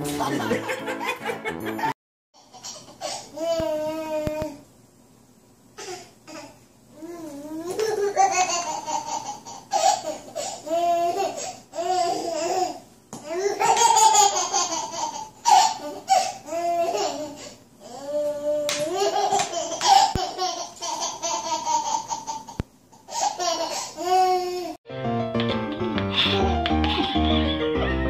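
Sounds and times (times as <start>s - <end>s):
baby laughing: 7.6s - 17.5s, 18.7s - 24.8s.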